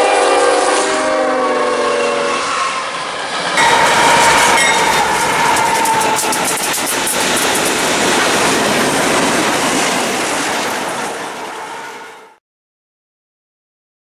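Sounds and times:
freight train wheels clattering: 2.9 - 12.1
steady ringing tone: 3.6 - 7.7.

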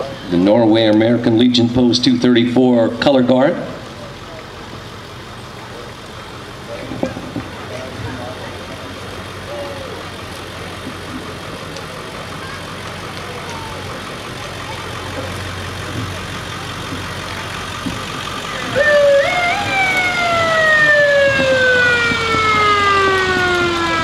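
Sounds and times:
truck engine passing slowly: 0.0 - 24.0
siren winding up and down: 18.6 - 24.0.

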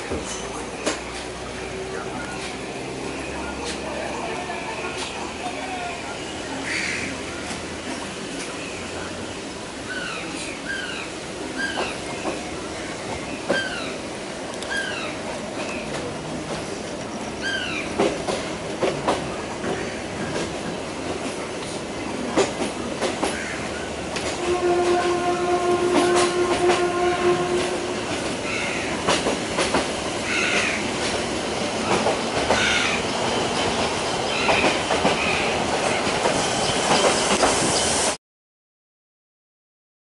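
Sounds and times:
train rumble: 0.0 - 38.2
wheels clacking over rail joints: 15.3 - 25.2, 25.8 - 37.8.

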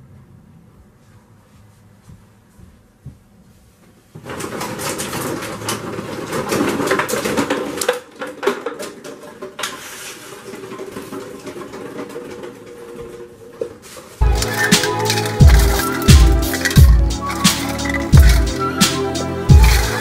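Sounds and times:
plastic bottles crinkling: 14.2 - 20.0.

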